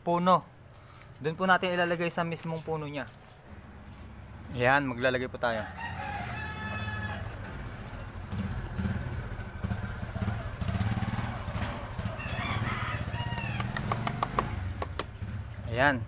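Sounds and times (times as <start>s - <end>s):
small engine rumbling: 3.4s - 16.0s.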